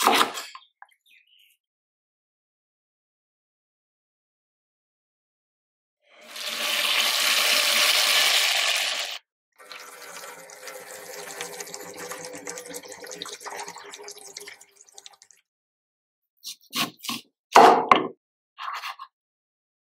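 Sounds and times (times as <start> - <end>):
tap water running into a bowl: 6.3 - 15.4.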